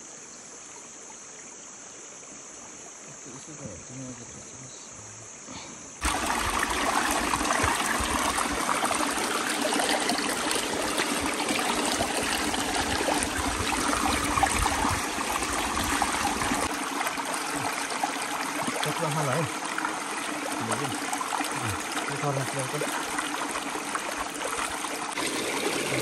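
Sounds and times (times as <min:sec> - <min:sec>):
stream trickling over stones: 0:06.0 - 0:26.0.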